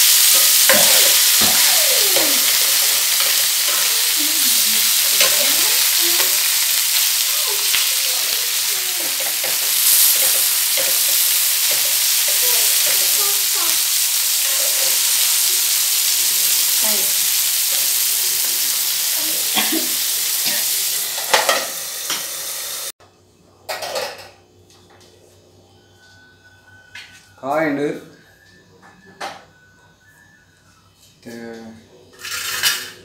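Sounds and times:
fish sizzling in oil: 0:00.0 - 0:23.0.

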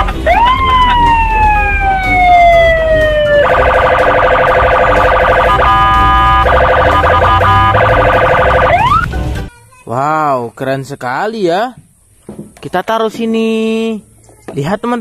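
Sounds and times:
electronic police siren: 0:00.3 - 0:09.1.

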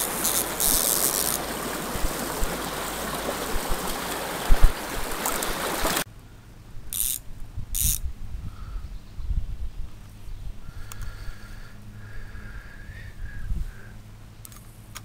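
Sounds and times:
stream water rushing: 0:00.0 - 0:06.1.

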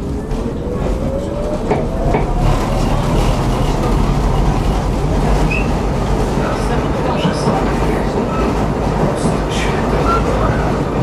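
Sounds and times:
wheels rumbling on rails: 0:00.0 - 0:11.0.

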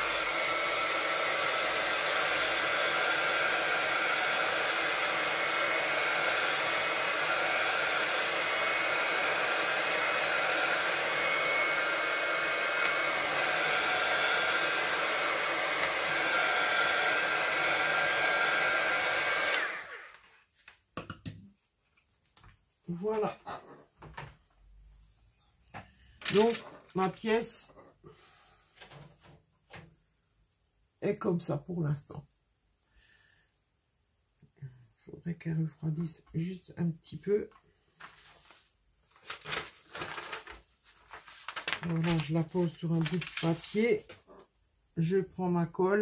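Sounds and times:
heat gun blowing: 0:00.0 - 0:20.3.

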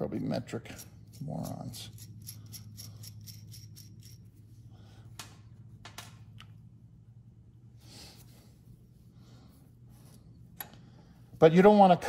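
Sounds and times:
low hum: 0:00.0 - 0:11.4
metal nut ticking on threaded rod: 0:00.7 - 0:04.2
metal parts clicking on bench: 0:00.7 - 0:04.2.

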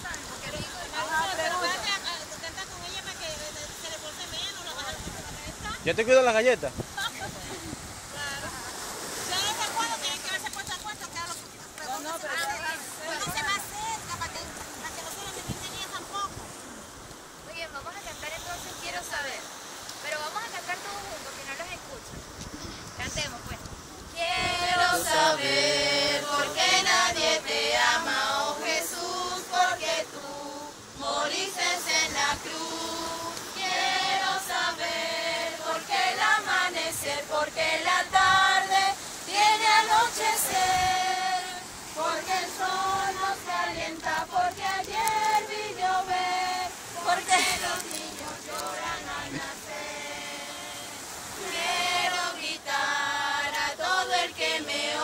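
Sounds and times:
choir singing: 0:24.2 - 0:55.0.

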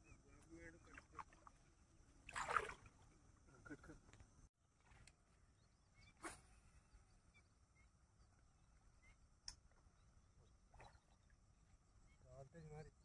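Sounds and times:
faint bird chirps: 0:05.4 - 0:13.0.

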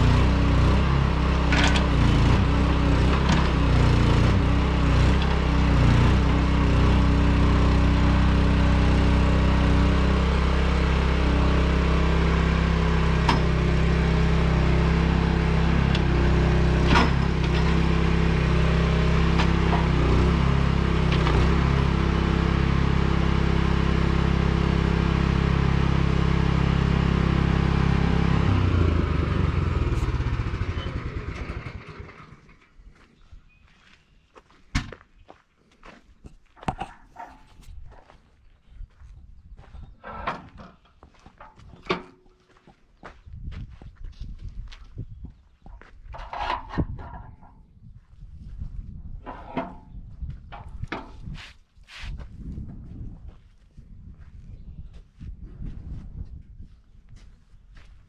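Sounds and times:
engine running steadily: 0:00.0 - 0:32.8, 0:48.5 - 0:53.4
metallic clanks and knocks: 0:01.5 - 0:02.1, 0:16.8 - 0:18.1, 0:46.1 - 0:47.6, 0:49.3 - 0:49.9.

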